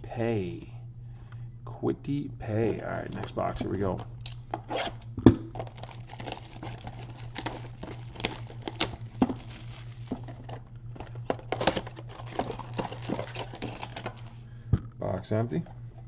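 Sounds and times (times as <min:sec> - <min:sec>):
cardboard box crackles and taps: 0:05.2 - 0:14.2
plastic shrink-wrap crinkling: 0:05.5 - 0:14.4.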